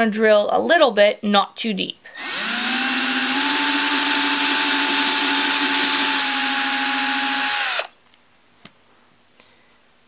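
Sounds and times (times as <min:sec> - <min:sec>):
cordless drill whining: 0:02.2 - 0:07.9.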